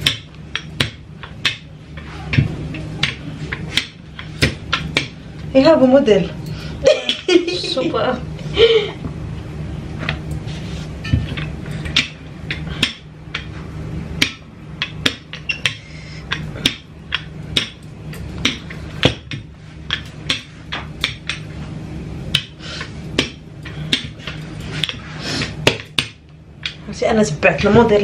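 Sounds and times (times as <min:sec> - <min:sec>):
rolling pin clicking and knocking: 0:00.0 - 0:01.7, 0:14.2 - 0:21.5
steady low hum: 0:00.0 - 0:28.0.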